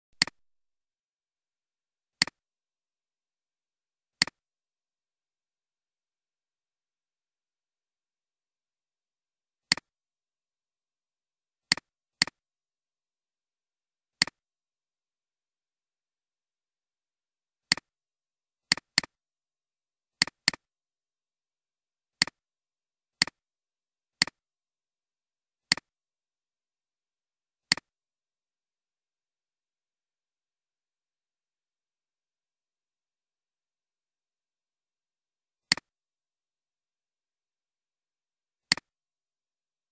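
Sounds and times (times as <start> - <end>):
computer mouse clicks: 0.2 - 0.4, 27.7 - 27.9, 35.7 - 35.9, 38.7 - 38.9.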